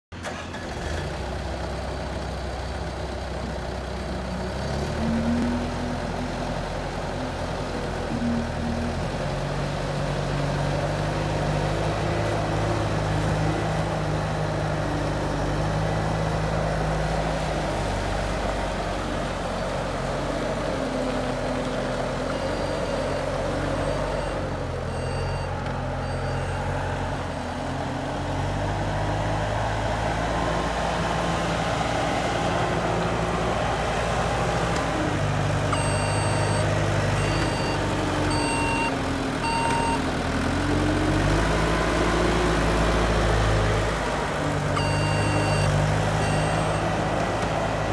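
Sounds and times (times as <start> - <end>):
diesel engine running: 0.1 - 47.9
backup alarm beeping: 35.7 - 40.0, 44.8 - 46.9.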